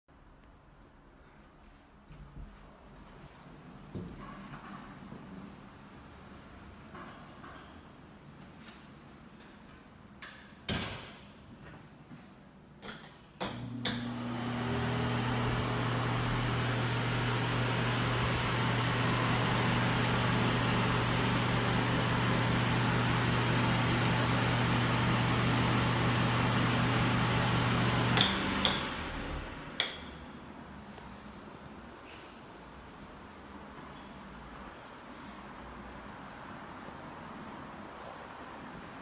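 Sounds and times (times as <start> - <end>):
exhaust fan running: 13.5 - 30.5.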